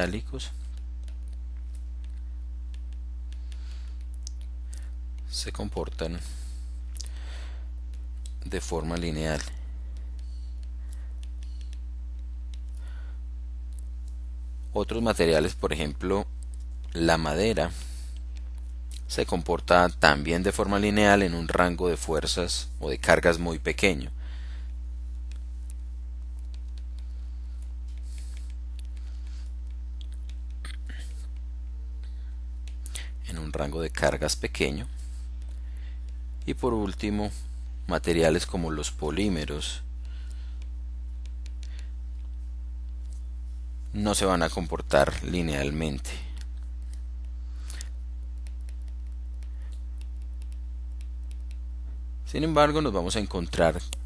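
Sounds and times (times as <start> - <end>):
steady low hum: 0.0 - 54.0
stylus tapping on tablet screen: 46.8 - 51.6.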